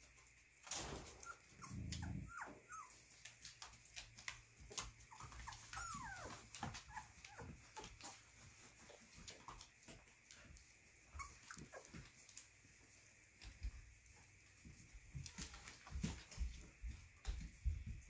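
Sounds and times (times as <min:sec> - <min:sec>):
scratching and rustling on blanket: 0:01.0 - 0:18.0
puppies squeaking and whimpering: 0:01.1 - 0:03.1, 0:04.7 - 0:08.2, 0:11.1 - 0:12.1
puppy yips: 0:01.2 - 0:03.0, 0:05.0 - 0:07.6, 0:11.1 - 0:12.0.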